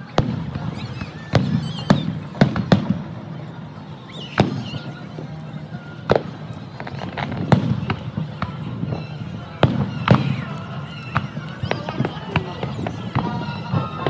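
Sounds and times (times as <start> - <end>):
fireworks booming: 0.0 - 14.0.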